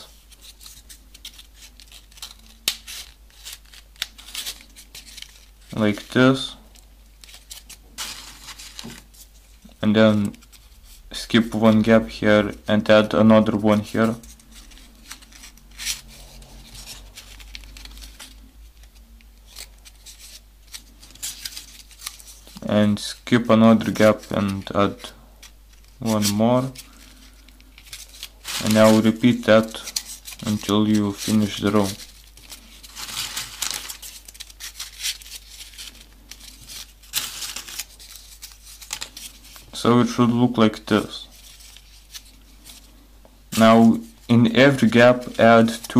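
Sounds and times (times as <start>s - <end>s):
paper rustling and rubbing: 0.0s - 45.9s
paper edges ticking: 0.3s - 8.9s, 23.7s - 39.7s.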